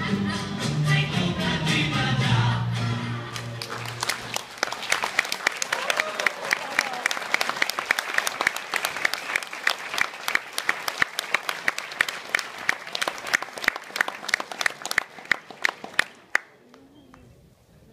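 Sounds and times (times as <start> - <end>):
audience applauding: 3.3 - 16.6
hands clapping close by: 3.3 - 17.2.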